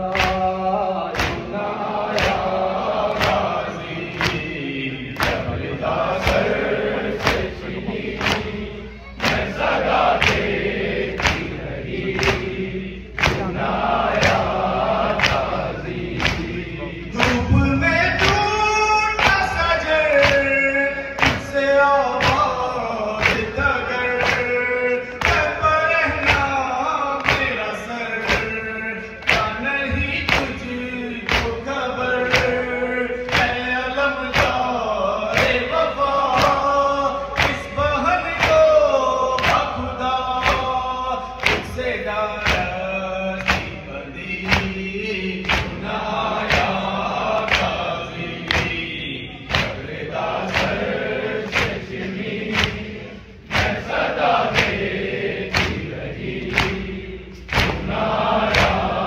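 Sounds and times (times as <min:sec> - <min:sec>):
crowd of men singing along: 0:00.0 - 0:59.0
men singing a lament: 0:00.0 - 0:59.0
hand slaps on chests: 0:00.1 - 0:00.4, 0:01.1 - 0:01.5, 0:02.1 - 0:04.6, 0:05.2 - 0:08.6, 0:09.2 - 0:16.6, 0:20.1 - 0:20.6, 0:21.2 - 0:21.6, 0:22.2 - 0:22.6, 0:23.2 - 0:23.6, 0:24.2 - 0:24.6, 0:25.2 - 0:25.6, 0:26.2 - 0:26.6, 0:27.2 - 0:27.6, 0:28.2 - 0:28.6, 0:29.2 - 0:29.6, 0:30.2 - 0:30.6, 0:31.2 - 0:31.7, 0:32.3 - 0:32.6, 0:33.3 - 0:33.6, 0:34.3 - 0:34.7, 0:35.3 - 0:36.7, 0:37.4 - 0:37.7, 0:38.4 - 0:38.8, 0:39.4 - 0:39.8, 0:40.4 - 0:40.8, 0:41.4 - 0:42.8, 0:43.4 - 0:43.8, 0:44.4 - 0:44.8, 0:45.4 - 0:47.9, 0:48.5 - 0:48.9, 0:49.5 - 0:52.9, 0:53.5 - 0:54.9, 0:55.5 - 0:59.0.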